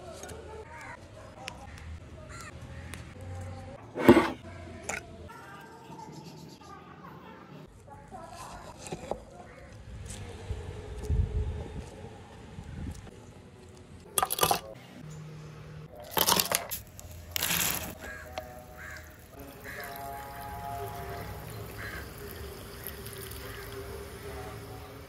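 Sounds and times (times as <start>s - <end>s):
fizzy water pouring into glass: 19.4s - 24.8s.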